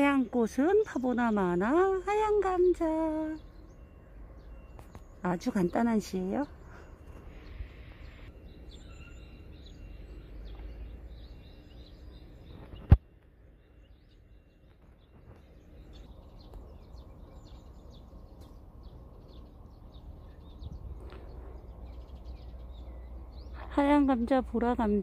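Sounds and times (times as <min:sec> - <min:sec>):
faint bird chirps: 0:00.0 - 0:25.0
steady low rumble: 0:12.1 - 0:25.0.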